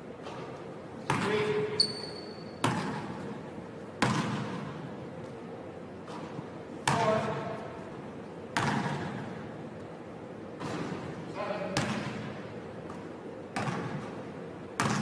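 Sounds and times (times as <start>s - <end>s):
basketball thuds echoing in gym: 0.2s - 1.9s, 2.6s - 3.4s, 4.0s - 4.9s, 6.0s - 7.6s, 8.5s - 9.5s, 10.6s - 15.0s.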